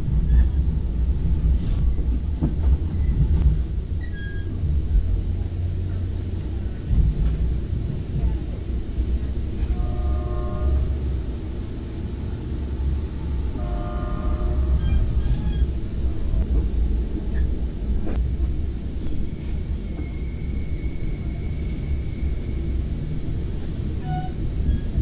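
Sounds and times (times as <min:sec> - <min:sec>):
train rumble inside passenger car: 0:00.0 - 0:25.0
faint high squeal: 0:04.0 - 0:04.6, 0:19.4 - 0:22.7
multi-tone train horn blasts: 0:09.6 - 0:11.2, 0:13.5 - 0:15.2.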